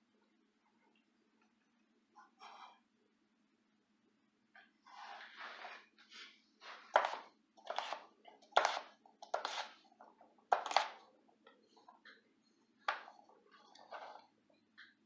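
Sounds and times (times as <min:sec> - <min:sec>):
knife cutting potato on board: 0:06.9 - 0:09.8, 0:10.5 - 0:11.0.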